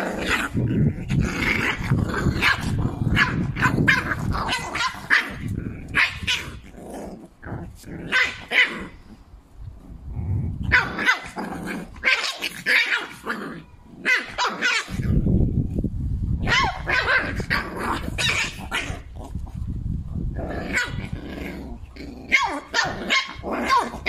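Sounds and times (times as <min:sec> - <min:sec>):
dog growling: 0:00.0 - 0:09.2, 0:09.8 - 0:15.2, 0:20.3 - 0:24.0
puppy yapping barks: 0:02.4 - 0:06.6, 0:08.1 - 0:08.8, 0:10.7 - 0:11.4, 0:12.0 - 0:15.0, 0:16.4 - 0:19.0, 0:22.3 - 0:24.0.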